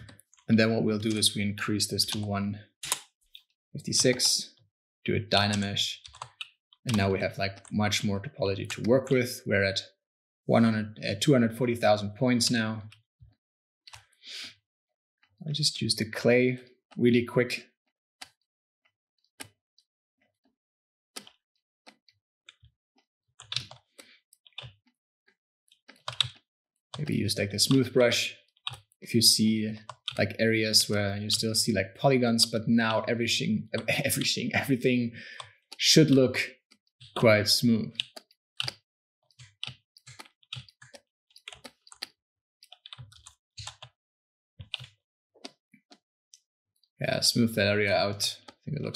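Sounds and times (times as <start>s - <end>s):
computer keyboard and mouse clicks: 0.0s - 4.3s, 5.3s - 9.2s, 21.2s - 22.7s, 23.4s - 24.9s, 25.8s - 31.6s, 33.7s - 44.0s, 44.6s - 46.4s.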